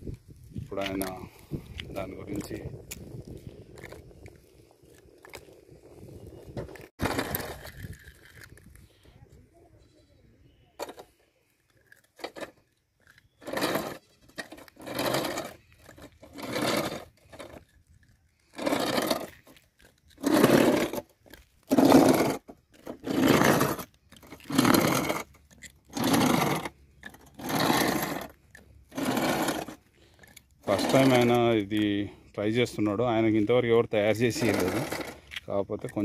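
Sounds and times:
skateboard wheels rolling on asphalt: 0.0s - 11.4s, 12.0s - 36.0s.

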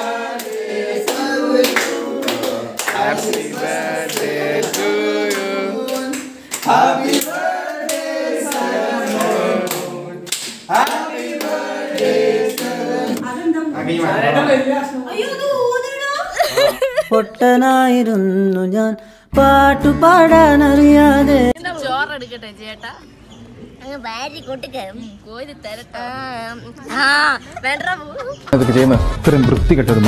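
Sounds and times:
group of people singing a celebration song: 0.0s - 14.7s, 19.3s - 21.6s
people clapping in time: 0.3s - 12.8s.

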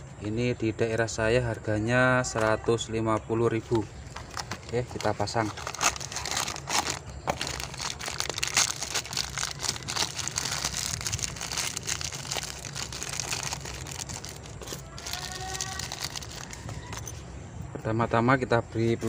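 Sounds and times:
plastic bag crinkling: 4.1s - 17.1s
plastic bag tearing: 4.2s - 17.0s.

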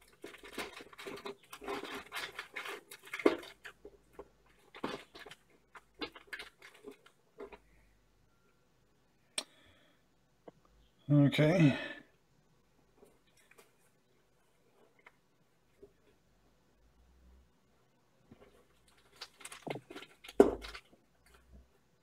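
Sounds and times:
paper rustling and crinkling: 0.0s - 7.7s, 18.3s - 21.6s.

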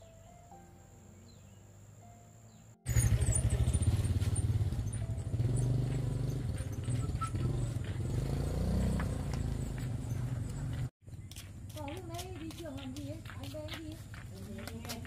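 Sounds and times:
small engine running: 2.8s - 10.9s.

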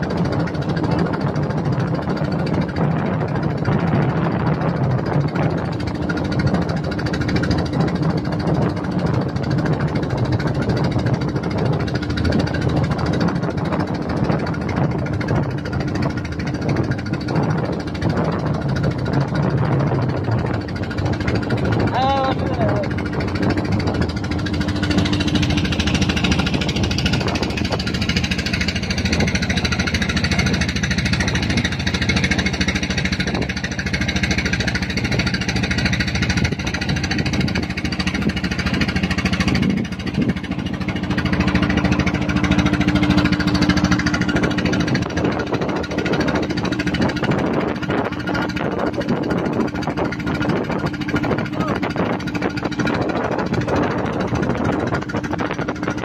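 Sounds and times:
boat engine knocking: 0.0s - 56.0s.

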